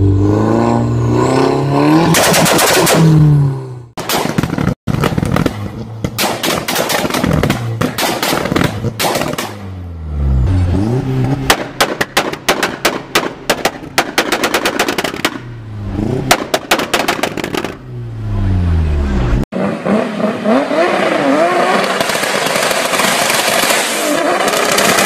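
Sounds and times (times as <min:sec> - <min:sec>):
exhaust popping and banging: 0:04.0 - 0:09.6, 0:11.4 - 0:17.8
car engine revving: 0:07.2 - 0:25.0.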